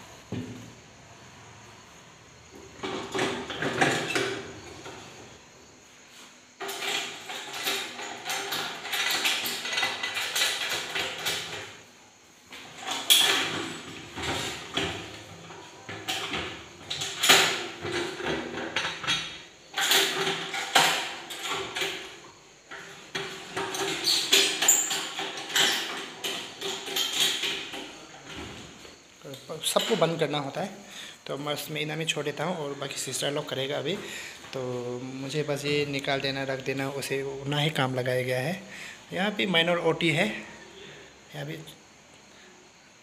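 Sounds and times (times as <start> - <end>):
metal clanking and scraping: 6.6 - 11.8, 12.7 - 28.9.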